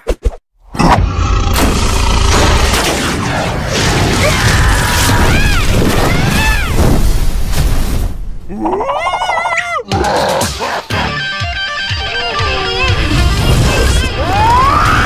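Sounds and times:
cartoon rumbling crashing din: 0:00.8 - 0:07.2.

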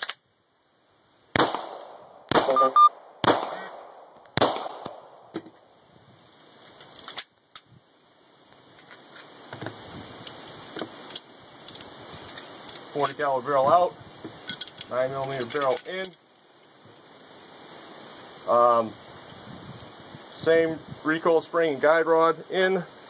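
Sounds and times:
pistol shots with echo: 0:01.4 - 0:05.2
metallic clicks and rattles: 0:10.2 - 0:13.3, 0:14.4 - 0:16.8.

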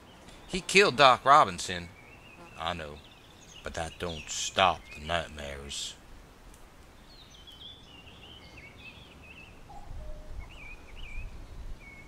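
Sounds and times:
small bird chirping: 0:01.9 - 0:05.6, 0:07.0 - 0:12.0.

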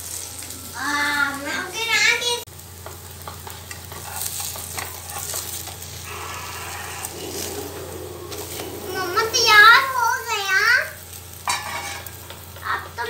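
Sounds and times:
pancake sizzling: 0:00.0 - 0:13.0
metal spatula scraping pan: 0:03.9 - 0:10.3, 0:11.5 - 0:12.2.

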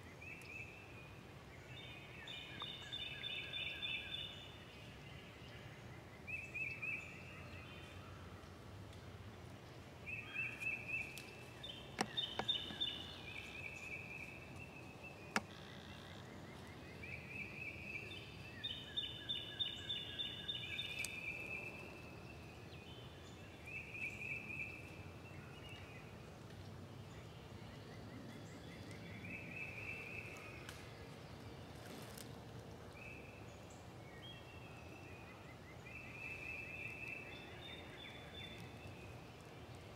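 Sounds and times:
songbirds trilling: 0:10.1 - 0:26.1.

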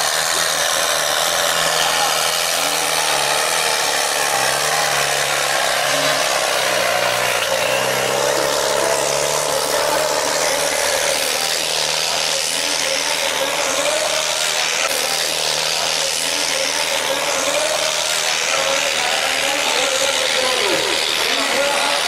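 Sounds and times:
tractor diesel engine under load: 0:00.0 - 0:22.0.

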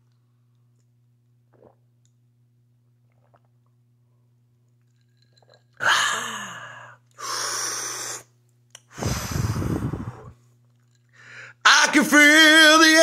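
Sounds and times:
man blowing out breath: 0:05.8 - 0:08.3, 0:08.9 - 0:10.4
man gasping ahh: 0:05.8 - 0:08.3, 0:08.9 - 0:10.4, 0:11.2 - 0:11.6.

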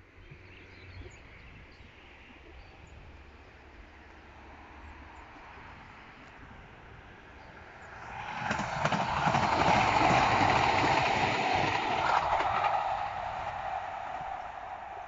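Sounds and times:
tram wheels rumbling on rails: 0:05.6 - 0:15.0.

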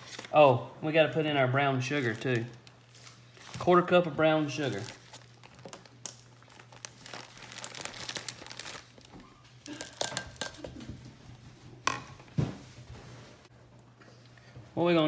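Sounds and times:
plastic bag crinkling: 0:01.8 - 0:10.6.

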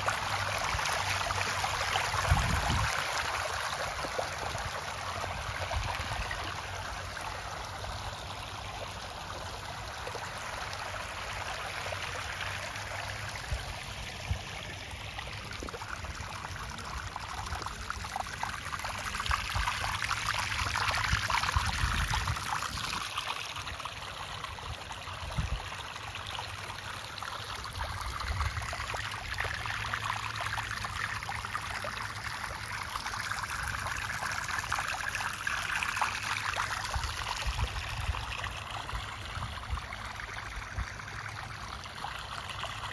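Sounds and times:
shallow water trickling: 0:00.0 - 0:42.9.

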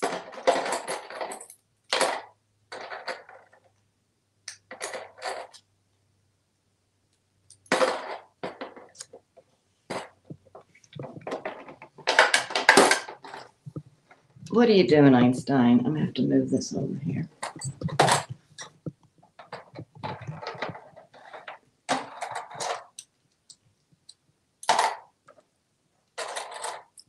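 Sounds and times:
toy coins clattering on plastic: 0:00.0 - 0:03.8, 0:04.5 - 0:05.7, 0:07.5 - 0:09.1, 0:11.2 - 0:13.5, 0:19.4 - 0:23.1, 0:24.6 - 0:25.4, 0:26.1 - 0:27.0.

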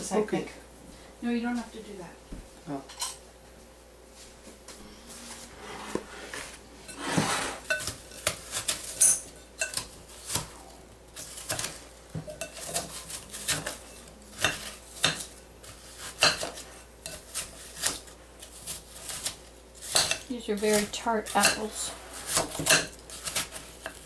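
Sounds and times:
knife clinking on glass bowl: 0:08.9 - 0:09.8.

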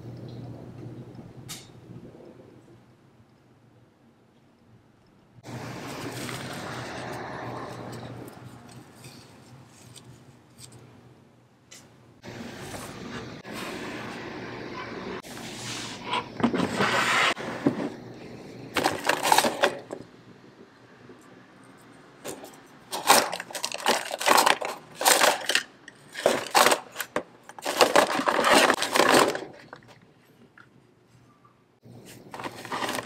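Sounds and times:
plastic boxes rattling: 0:18.8 - 0:20.0, 0:22.3 - 0:30.0, 0:32.4 - 0:33.0.

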